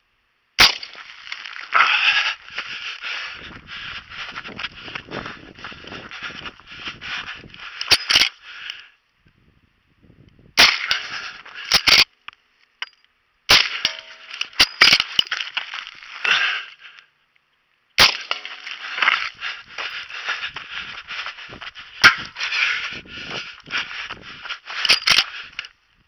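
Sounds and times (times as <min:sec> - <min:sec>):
rustling haze: 0:00.9 - 0:08.9, 0:18.2 - 0:26.0.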